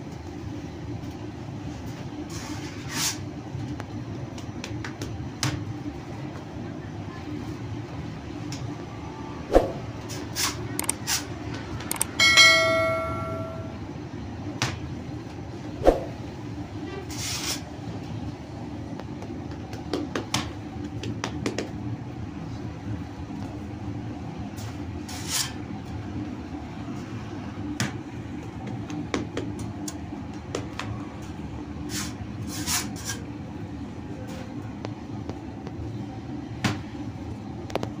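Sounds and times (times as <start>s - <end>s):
short ringing tone: 11.9s - 13.8s.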